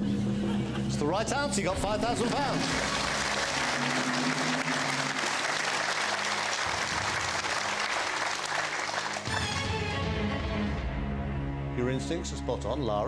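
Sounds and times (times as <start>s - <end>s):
studio audience applauding: 2.2s - 10.0s.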